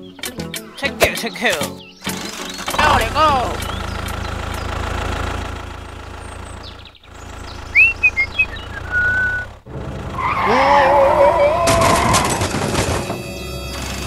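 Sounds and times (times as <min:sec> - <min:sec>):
tractor engine running: 0:00.1 - 0:14.0
short chirping whistles: 0:07.7 - 0:09.5.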